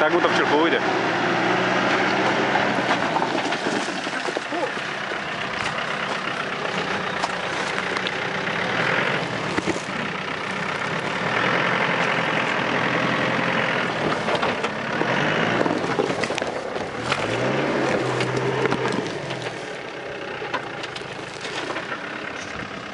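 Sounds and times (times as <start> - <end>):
off-road vehicle engine revving: 0.0 - 22.9
tyres crunching on loose stone: 1.9 - 11.3, 13.8 - 22.7.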